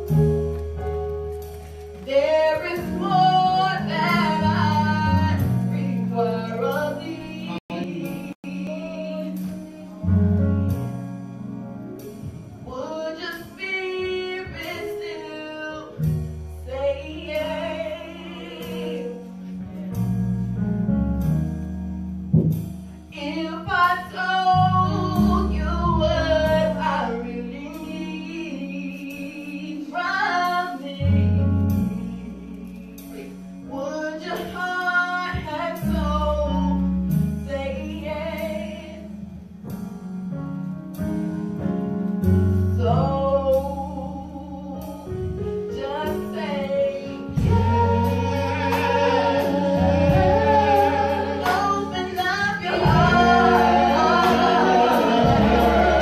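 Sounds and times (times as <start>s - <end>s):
woman singing gospel song: 2.0s - 10.1s, 12.7s - 19.3s, 23.2s - 36.9s, 37.5s - 39.1s, 42.7s - 56.0s
accompaniment with bass and beat: 47.3s - 56.0s.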